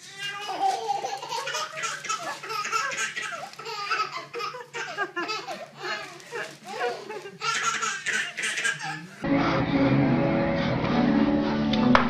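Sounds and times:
baby laughing: 0.1s - 9.2s.

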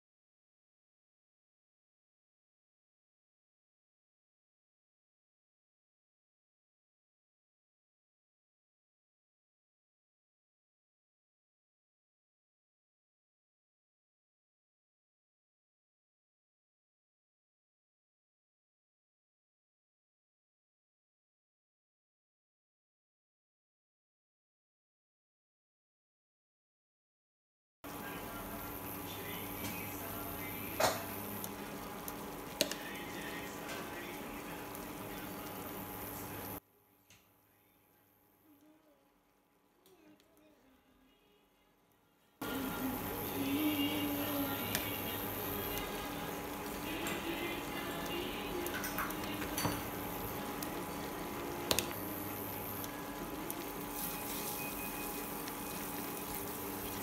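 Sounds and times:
gravy simmering and sizzling in a pan: 27.9s - 36.6s, 42.4s - 57.0s.

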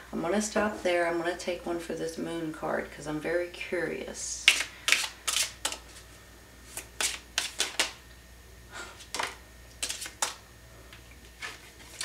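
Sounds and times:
playing cards shuffling: 4.5s - 6.0s, 6.7s - 8.0s, 9.0s - 10.4s
sharp card snaps and taps: 6.8s - 8.0s.

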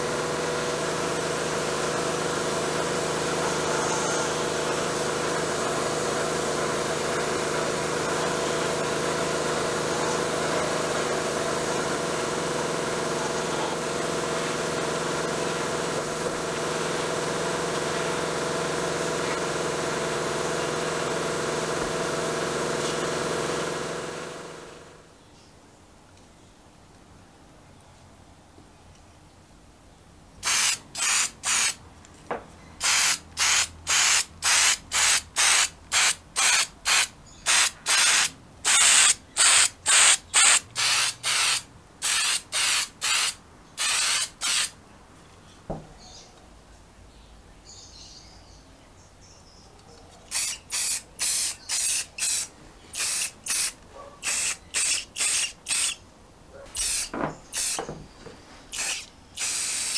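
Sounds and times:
spray paint can hissing: 30.4s - 31.8s, 32.8s - 44.8s, 50.3s - 56.0s, 56.8s - 57.9s, 58.7s - 59.9s.

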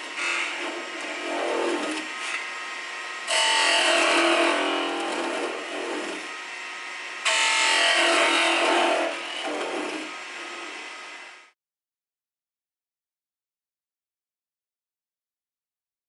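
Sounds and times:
wood lathe running: 0.0s - 2.2s, 3.2s - 6.4s, 7.3s - 10.8s
turning tool cutting wood: 0.0s - 2.5s, 3.2s - 6.4s, 7.3s - 10.8s.

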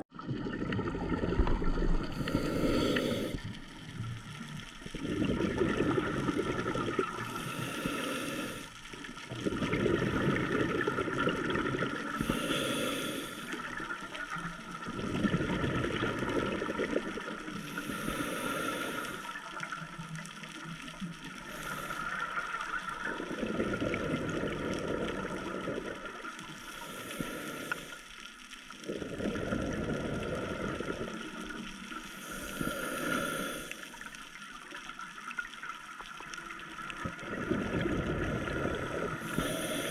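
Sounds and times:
gurgling exhaled bubbles: 0.1s - 28.0s, 28.7s - 39.9s
regulator inhale hiss: 2.0s - 3.6s, 7.2s - 9.0s, 12.0s - 13.8s, 17.6s - 19.6s, 21.4s - 23.4s, 26.4s - 28.4s, 31.8s - 34.4s, 38.9s - 39.9s.

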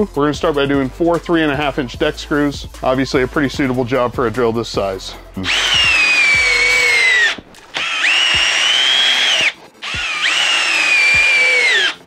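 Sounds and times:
drill driving screws into wood: 5.5s - 12.0s.

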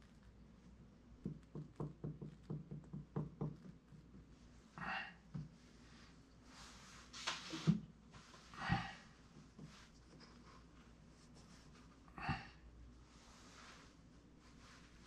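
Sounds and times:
wooden blocks knocking: 1.2s - 4.2s.

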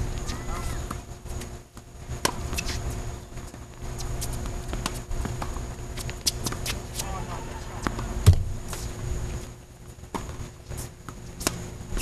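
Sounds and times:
low steady rumble: 0.0s - 12.0s
ball bouncing: 7.8s - 8.8s.

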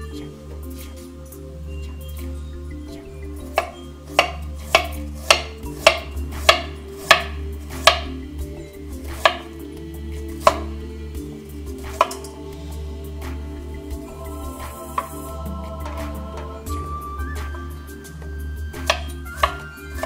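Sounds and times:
background music: 0.0s - 20.0s
knife chopping on cutting board: 3.6s - 8.1s, 9.2s - 9.5s.

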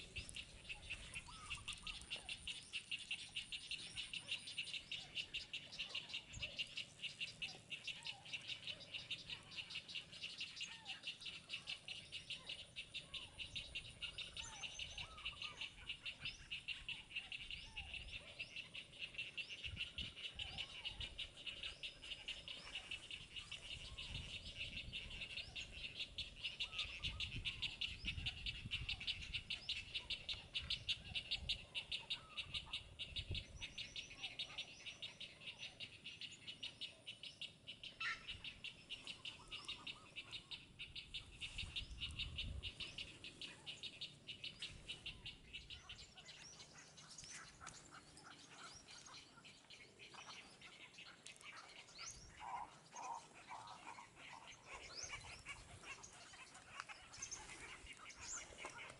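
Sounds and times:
high fast-pulsing animal chorus: 50.3s - 58.9s.

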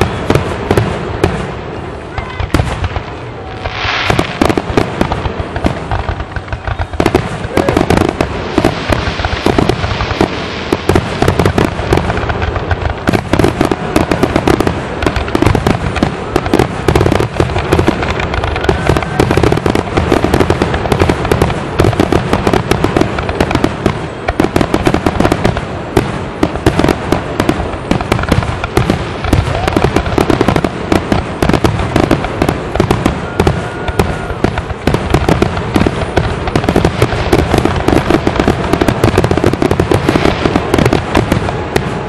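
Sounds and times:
fireworks booming: 0.0s - 42.0s
fireworks crackling: 0.0s - 42.0s.

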